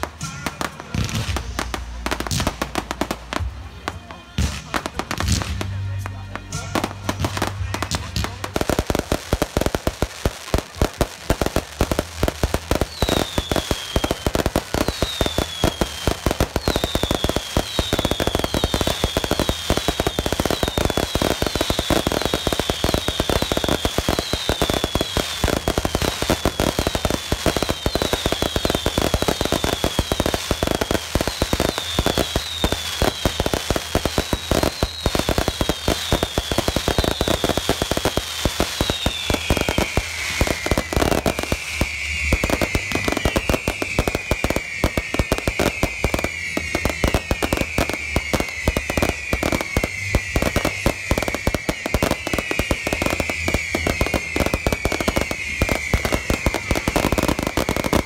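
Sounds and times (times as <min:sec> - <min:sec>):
fireworks bangs and crackles: 0:00.0 - 0:58.0
low long falling whistle: 0:38.7 - 0:58.0.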